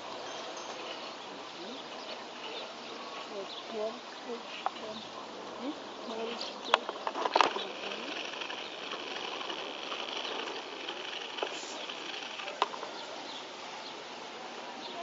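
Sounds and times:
high-pitched buzz: 6.1s - 12.8s
sharp clicks: 6.1s - 12.9s.

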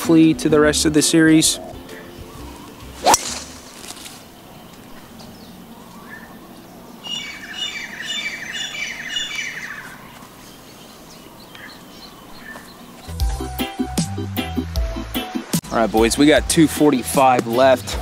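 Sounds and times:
bird calling: 1.4s - 13.1s
golf club striking ball: 3.0s - 3.9s.

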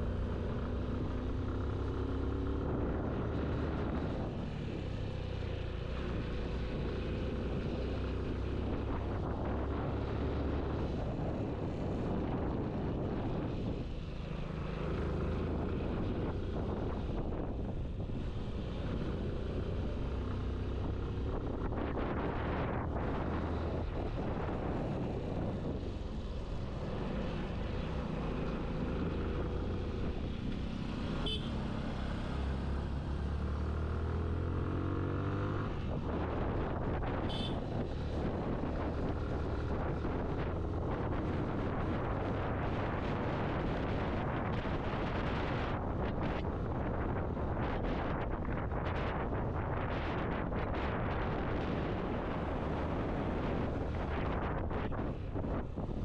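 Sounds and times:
wind rush over microphone: 7.5s - 31.4s, 32.0s - 56.0s
motorcycle engine accelerating: 14.4s - 45.8s.

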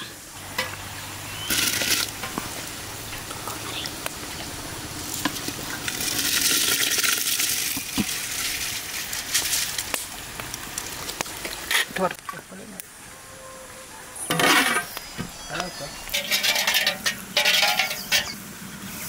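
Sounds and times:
boiling water hissing: 0.0s - 13.2s, 14.0s - 19.0s
rice pouring into water: 5.6s - 9.9s.

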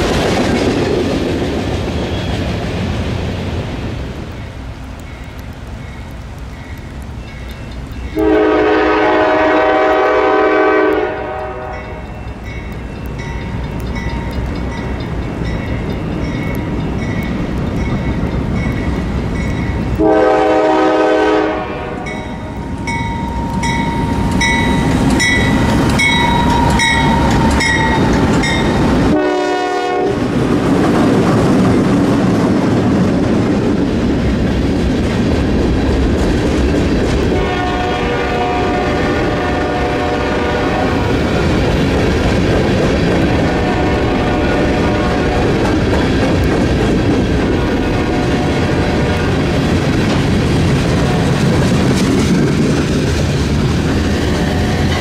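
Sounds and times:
locomotive bell ringing: 5.1s - 8.4s, 11.4s - 19.9s, 22.0s - 29.2s, 54.4s - 55.0s
locomotive horn blasts: 8.2s - 12.2s, 20.0s - 22.5s, 29.1s - 30.2s, 37.3s - 41.0s, 43.5s - 45.4s, 47.8s - 49.4s
freight cars clattering on rails: 22.1s - 29.2s, 41.0s - 55.0s.

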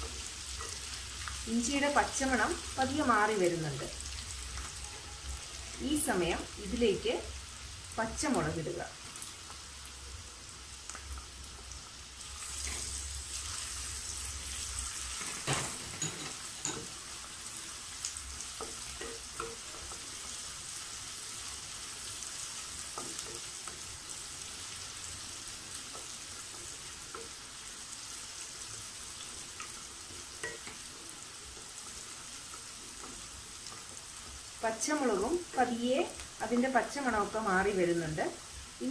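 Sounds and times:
ginger and chillies sizzling in oil: 0.0s - 38.9s.

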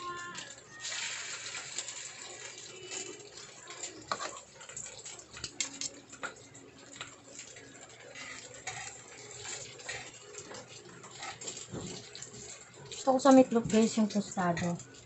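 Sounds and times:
meat frying in oil: 0.0s - 15.0s.

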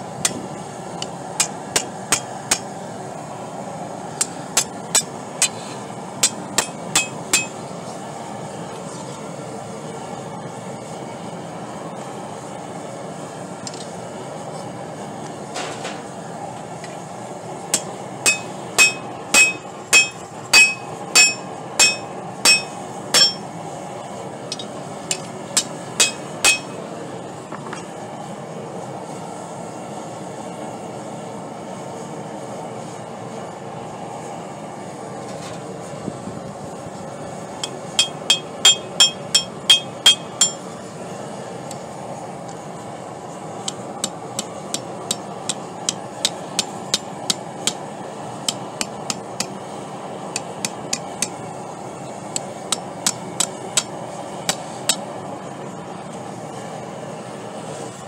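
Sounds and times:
gas forge roaring: 0.0s - 58.0s
hammer ringing on anvil: 6.2s - 7.6s, 17.8s - 23.5s, 24.5s - 26.8s, 37.6s - 40.7s.

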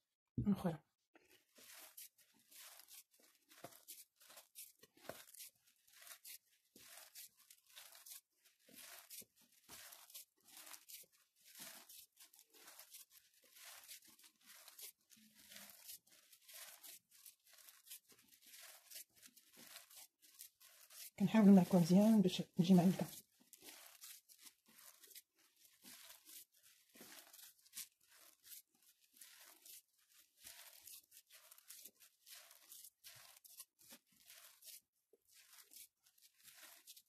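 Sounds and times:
hand kneading crumbly dough: 0.4s - 37.0s.

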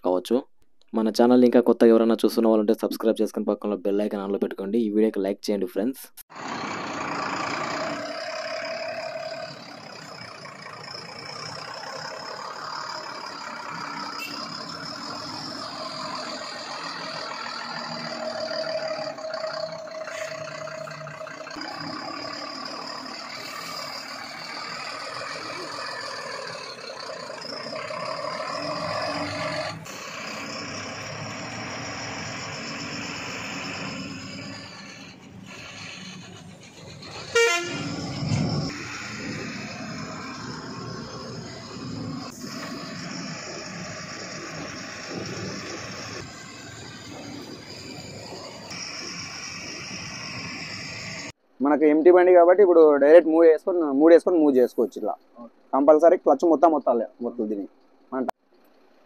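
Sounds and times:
truck diesel engine running: 6.3s - 51.4s
steady high whine: 38.3s - 51.4s.

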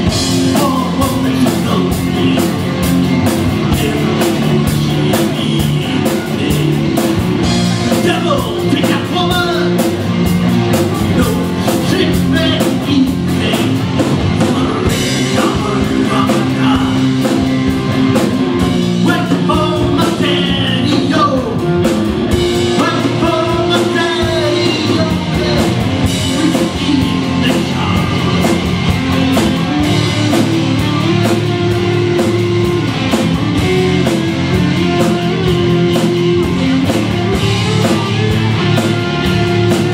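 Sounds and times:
rock band playing live: 0.0s - 39.9s
steady drum beat: 0.0s - 39.9s.

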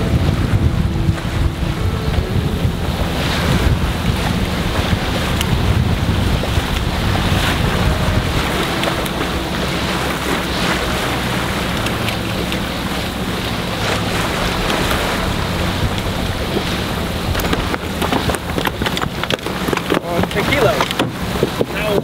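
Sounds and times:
low engine hum: 0.0s - 22.0s
water rushing along hull: 0.0s - 22.0s
wind buffeting microphone: 0.0s - 22.0s.

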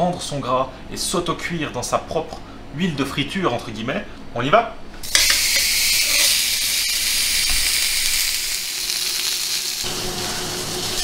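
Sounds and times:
meat sizzling on a grill pan: 5.1s - 11.0s.

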